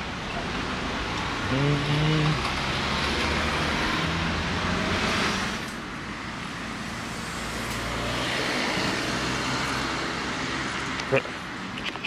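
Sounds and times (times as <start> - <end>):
vehicles passing: 0.0 - 12.0.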